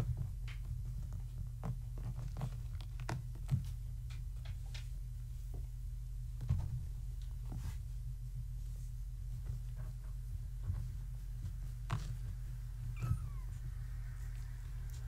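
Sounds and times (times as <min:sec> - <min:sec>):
steady low hum: 0:00.0 - 0:15.0
kittens scampering: 0:12.8 - 0:15.0.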